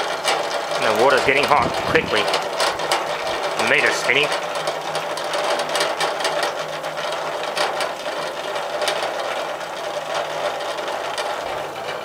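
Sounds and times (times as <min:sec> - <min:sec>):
electrical buzz and motor whirr: 0:00.0 - 0:09.8
electrical arcing crackles: 0:00.7 - 0:09.5.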